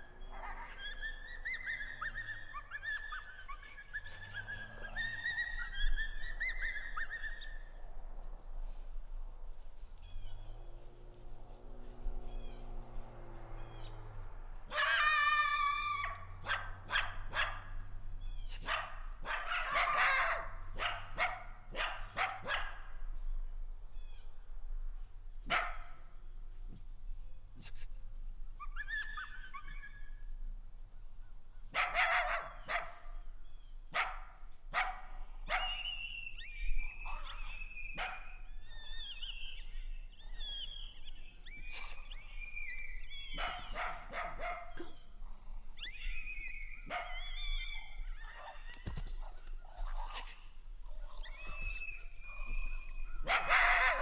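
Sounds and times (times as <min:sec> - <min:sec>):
dog yelping: 0:14.7 - 0:17.6, 0:18.6 - 0:22.7, 0:28.6 - 0:30.0, 0:31.8 - 0:32.9, 0:34.8 - 0:35.8, 0:37.1 - 0:38.2, 0:43.3 - 0:45.0, 0:46.9 - 0:48.8, 0:53.2 - 0:54.0
dog barking: 0:16.0 - 0:17.7, 0:18.5 - 0:22.8, 0:25.5 - 0:26.0, 0:31.7 - 0:33.1, 0:33.9 - 0:35.9, 0:37.1 - 0:38.4, 0:43.3 - 0:45.0, 0:46.9 - 0:47.4, 0:53.2 - 0:54.0.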